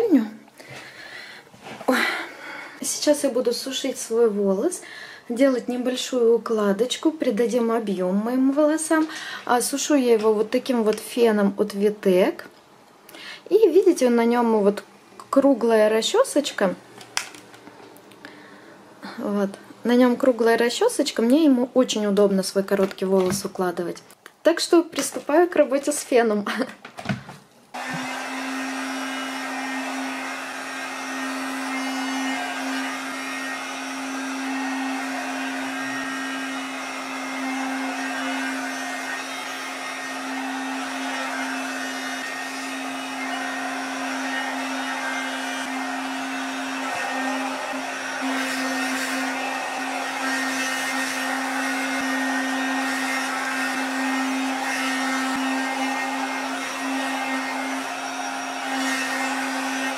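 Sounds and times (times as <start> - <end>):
hair dryer running: 0.0 - 4.2, 16.9 - 18.9, 27.8 - 59.9.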